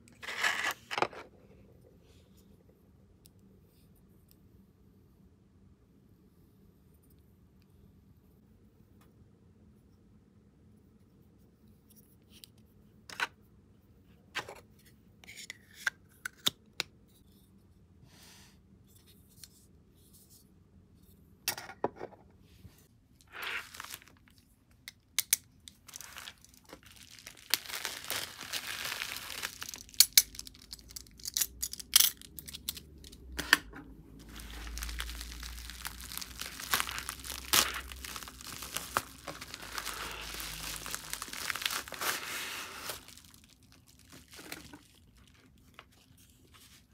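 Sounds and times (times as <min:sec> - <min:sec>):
bubble mailer tearing and crinkling: 0:23.2 - 0:24.3, 0:25.8 - 0:33.2, 0:34.2 - 0:45.7.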